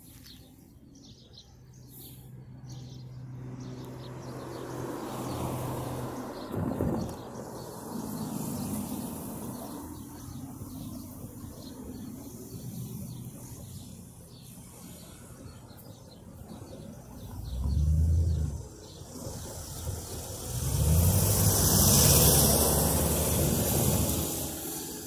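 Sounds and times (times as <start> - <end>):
road traffic rumble: 0.0 - 25.0
vehicle passing close: 17.2 - 25.0.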